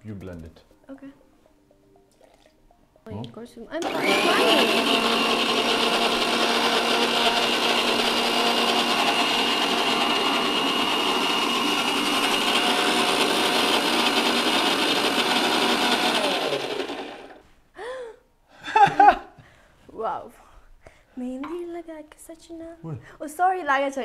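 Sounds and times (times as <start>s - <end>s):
mixer grinder running: 3.8s - 17.4s
motor spinning down: 3.8s - 17.4s.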